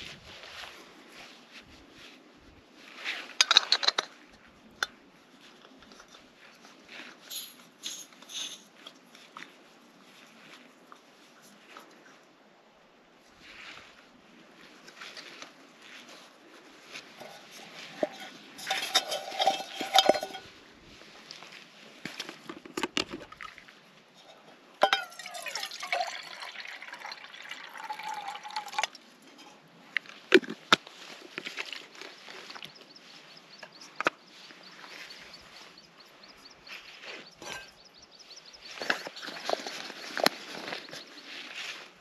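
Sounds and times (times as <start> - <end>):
bottle and pot clinking: 18.0 - 20.5, 24.8 - 28.9, 37.4 - 37.8
water pouring into metal pot: 24.8 - 28.9.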